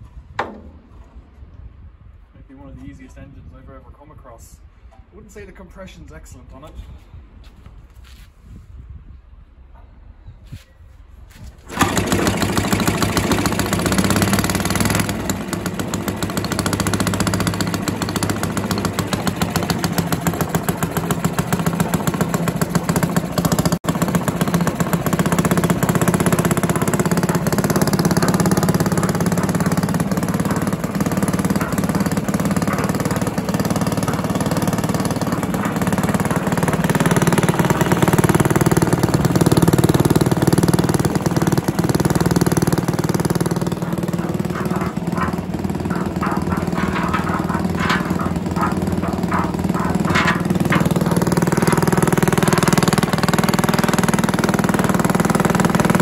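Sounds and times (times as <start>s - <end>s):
cement mixer engine running: 11.6s - 56.0s.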